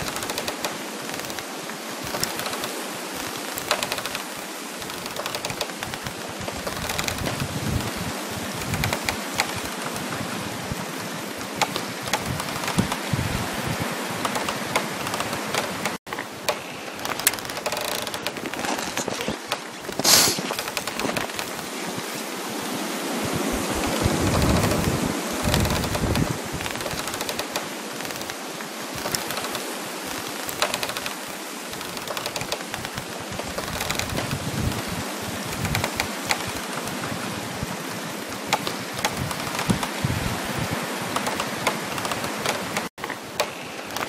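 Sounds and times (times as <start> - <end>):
frost crackling: 0.0 - 44.0
wind rushing: 2.0 - 28.3.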